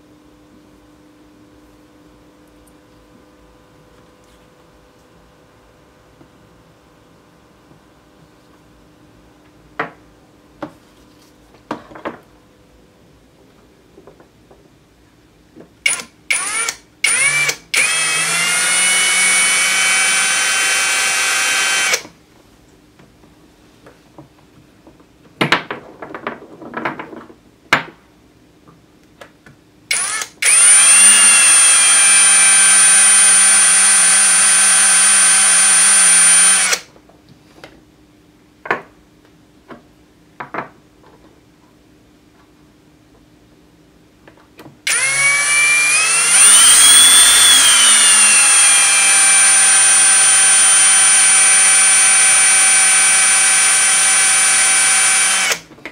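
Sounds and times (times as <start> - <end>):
cordless drill whining: 15.9 - 22.1, 29.9 - 36.9, 44.9 - 55.7
drill trigger blips: 15.9 - 22.1, 29.9 - 36.9, 44.9 - 55.6.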